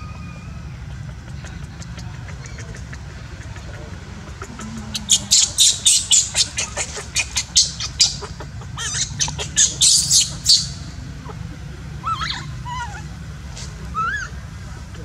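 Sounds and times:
baby monkey screaming: 4.4s - 11.0s, 12.0s - 13.1s, 13.9s - 14.4s.

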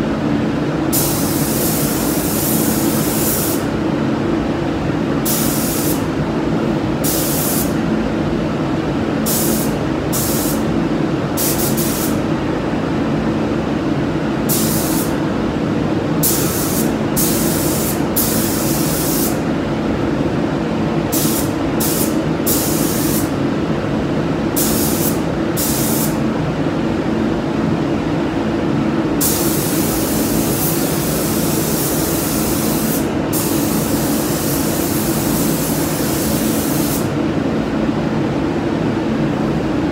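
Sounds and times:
ventilation low rumble: 0.0s - 39.9s
spray gun hissing: 0.9s - 3.6s, 5.2s - 6.1s, 7.0s - 7.8s, 9.3s - 10.6s, 11.4s - 12.2s, 14.5s - 15.1s, 16.2s - 19.4s, 21.1s - 23.3s, 24.6s - 26.2s, 29.2s - 37.1s.

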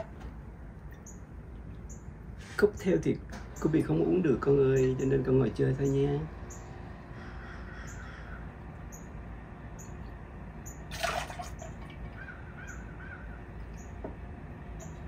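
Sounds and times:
liquid splashing into shaker: 10.9s - 12.0s.

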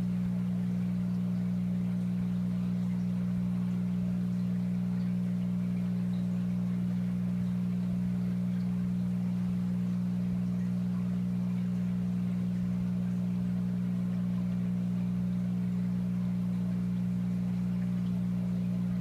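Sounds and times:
aquarium equipment humming: 0.0s - 19.0s.

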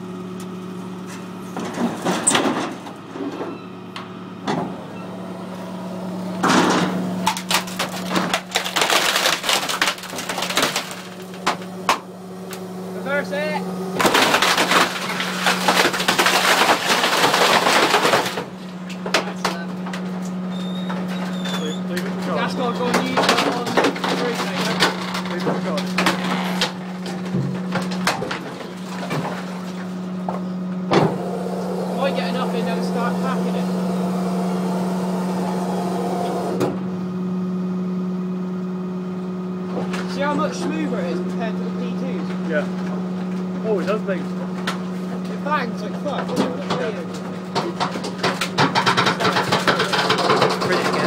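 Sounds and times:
hydraulic packer running: 0.0s - 51.0s
truck hum: 0.0s - 51.0s
wood splintering crackle: 6.4s - 35.6s, 39.8s - 51.0s.

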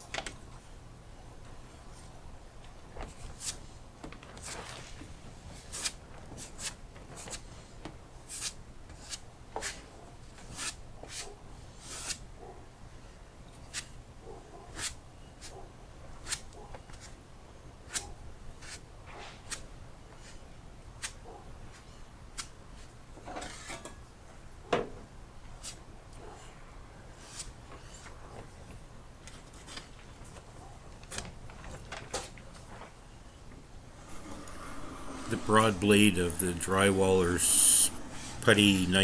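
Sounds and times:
steady low hum: 33.8s - 39.0s
hand tool scraping filler: 34.0s - 36.9s.

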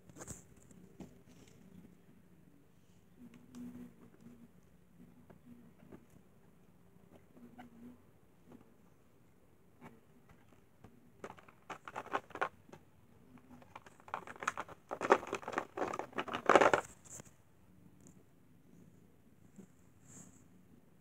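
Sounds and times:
toy trains clattering in plastic tray: 11.2s - 12.8s, 13.4s - 16.9s.

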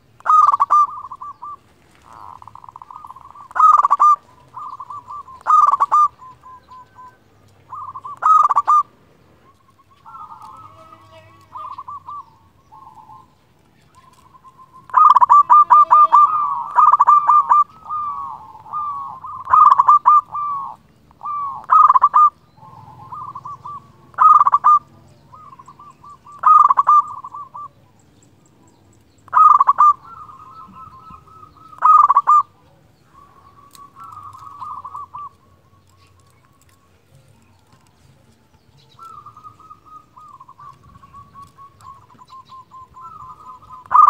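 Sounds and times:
dove cooing trills: 0.0s - 44.0s.

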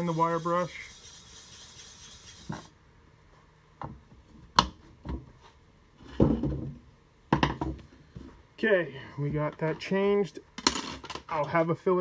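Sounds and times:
objects knocking and clunking: 3.8s - 5.4s, 6.0s - 8.4s.

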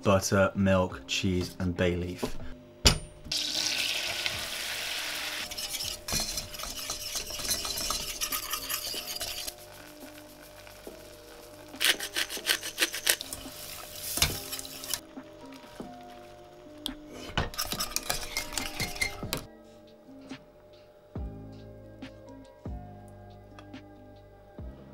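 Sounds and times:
butter sizzling in a saucepan: 3.3s - 16.8s, 17.4s - 19.2s
whisk scraping a pan: 3.8s - 11.0s, 11.7s - 15.0s, 17.1s - 19.5s.

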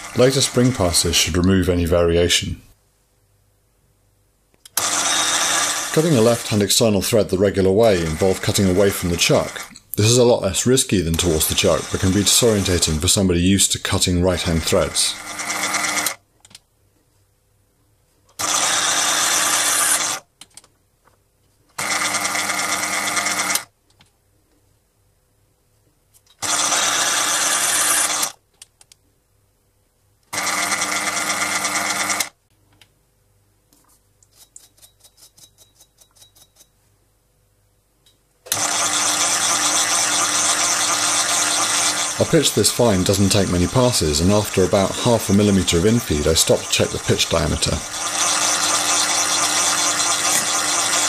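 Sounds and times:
mini lathe running: 0.0s - 0.8s, 4.8s - 6.7s, 7.8s - 9.7s, 11.1s - 13.0s, 14.4s - 16.2s, 18.4s - 20.2s, 21.8s - 23.6s, 26.4s - 28.4s, 30.3s - 32.3s, 38.5s - 51.0s.

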